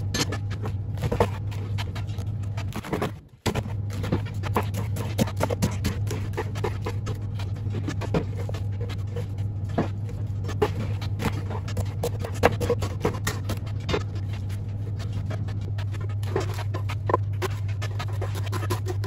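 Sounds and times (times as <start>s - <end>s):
steady low hum: 0.0s - 19.0s
knife chopping cabbage on board: 3.5s - 7.3s.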